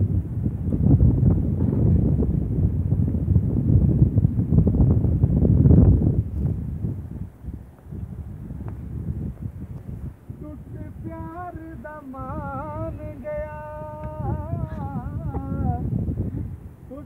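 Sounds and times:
wind rumble on microphone: 0.0s - 17.0s
person singing ornamented melody: 10.3s - 15.9s.

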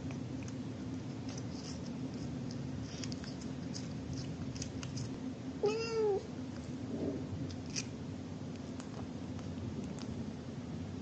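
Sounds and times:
cat meowing: 5.6s - 6.3s.

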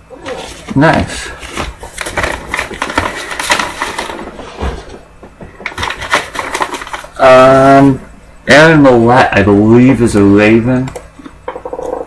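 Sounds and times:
man talking: 0.7s - 1.4s, 7.2s - 10.9s
trading cards rustling and clicking: 1.4s - 4.4s, 5.5s - 7.2s.

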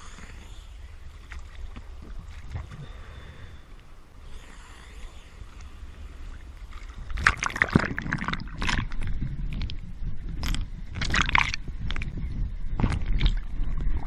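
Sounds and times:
low churning rumble: 0.0s - 14.0s
seawater sloshing and splashing: 6.3s - 9.8s, 10.4s - 12.2s.

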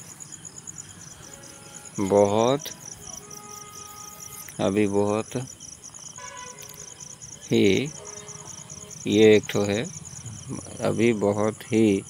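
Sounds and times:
crickets chirping: 0.0s - 12.0s
man's voice: 2.0s - 2.8s, 4.6s - 5.5s, 7.5s - 8.1s, 9.0s - 12.0s.

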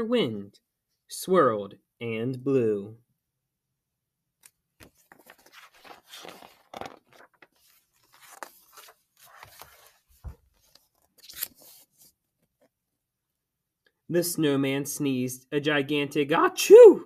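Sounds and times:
book pages rustling: 4.4s - 12.8s.

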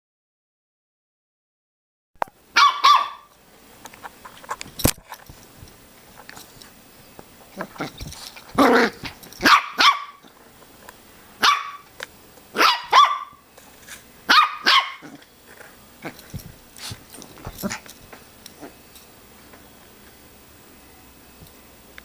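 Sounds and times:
puppy yapping: 2.6s - 3.3s, 8.6s - 10.2s, 11.4s - 11.8s, 12.6s - 13.4s, 14.3s - 15.2s.

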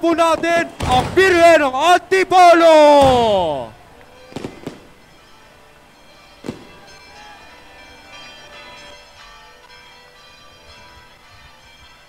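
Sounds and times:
firework bang: 3.0s - 3.4s, 4.3s - 5.0s, 6.4s - 6.8s
church bells ringing: 3.7s - 12.0s.

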